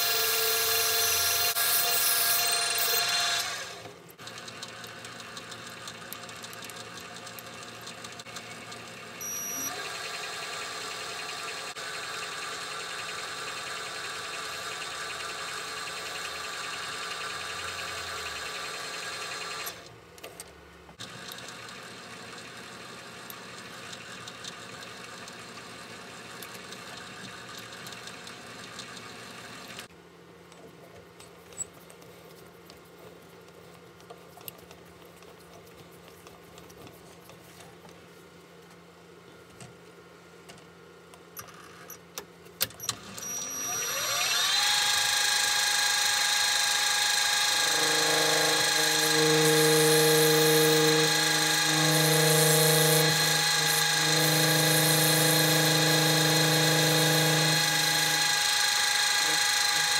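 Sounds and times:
drill boring into brass: 0.0 - 3.8, 43.2 - 59.9
metal lathe motor hum: 43.4 - 59.9.

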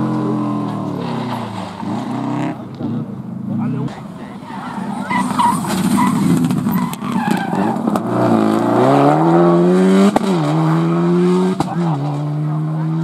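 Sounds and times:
rally car engine accelerating: 0.0 - 13.0
tyres scrabbling on dirt: 0.2 - 3.0, 3.8 - 8.8
gear shift crack: 3.7 - 8.8.

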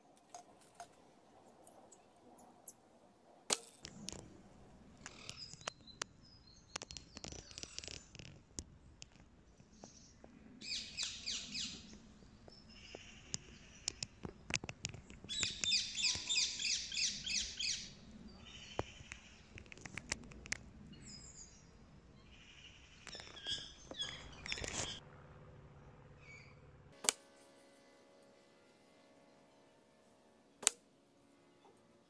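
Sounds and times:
small bird chirping: 5.0 - 8.3, 9.6 - 14.4, 15.2 - 19.6, 20.8 - 25.0.

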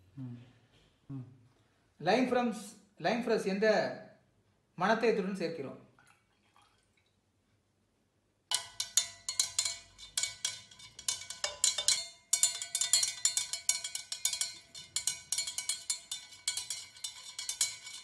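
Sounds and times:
glass rod clinking in glass cylinder: 8.5 - 18.0.

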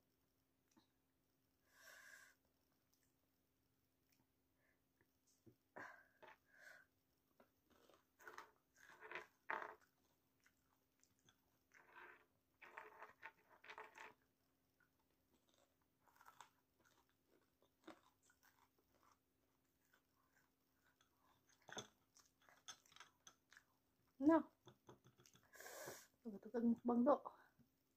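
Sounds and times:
close chewing of fried food: 7.4 - 8.7, 14.8 - 23.9.

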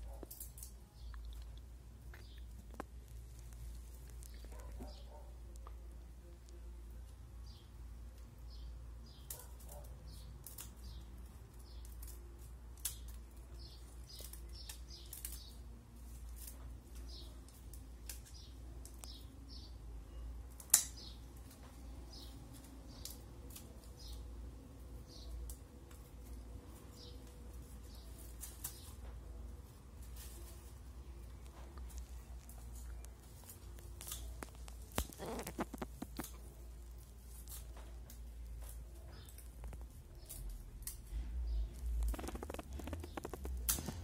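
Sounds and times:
small birds chirping: 0.0 - 44.0
scissors snipping wooden sticks: 20.6 - 21.1, 31.6 - 36.6, 42.0 - 44.0
loud wood crack: 33.5 - 36.5, 41.8 - 44.0.

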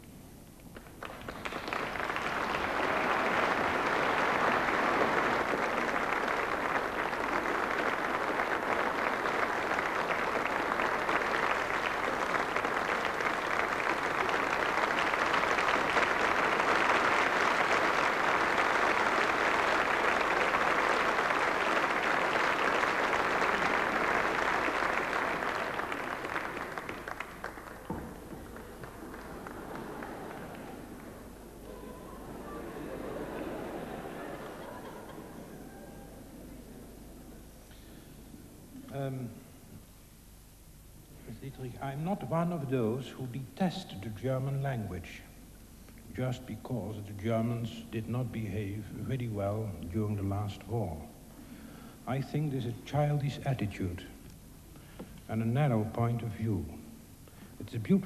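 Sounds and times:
audience applauding: 0.8 - 37.8.

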